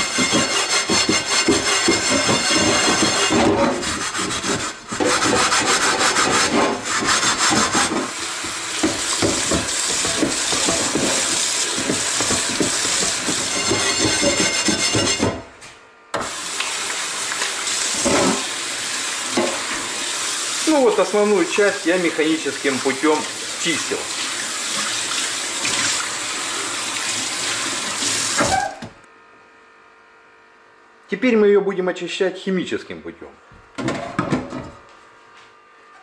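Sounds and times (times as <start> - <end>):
tap water running onto pan: 0.0 - 15.2, 16.2 - 28.6
metal pad scrubbing a skillet: 0.0 - 15.4.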